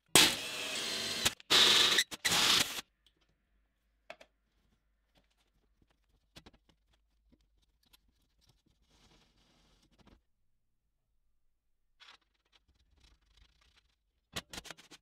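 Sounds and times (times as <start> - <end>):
drill bit cutting metal: 0.2 - 2.8.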